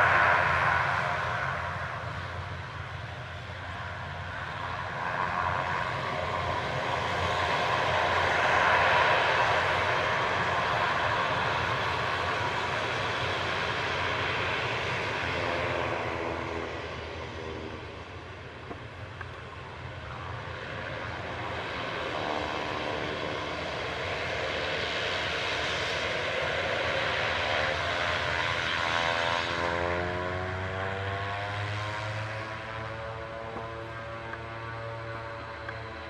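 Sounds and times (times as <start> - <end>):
turboprop engines whining: 0.0 - 36.0.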